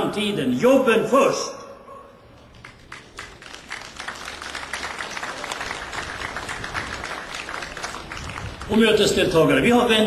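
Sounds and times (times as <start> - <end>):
crowd applauding: 2.6 - 8.9.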